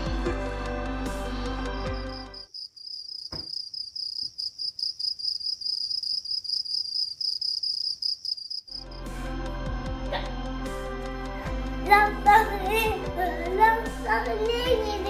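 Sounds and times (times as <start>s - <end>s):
cricket chirping: 1.8s - 9.0s.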